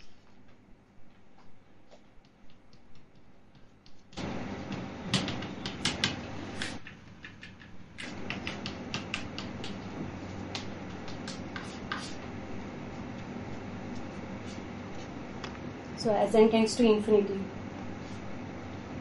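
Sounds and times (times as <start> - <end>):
low room hum: 0.0 - 19.0
chalk tapping on blackboard: 2.2 - 12.2.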